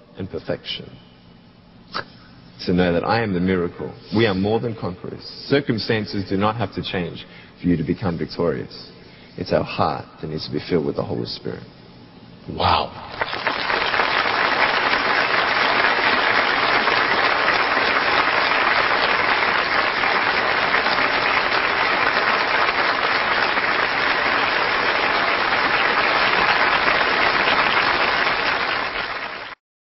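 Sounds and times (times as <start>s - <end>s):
audience applauding: 13.1s - 29.6s.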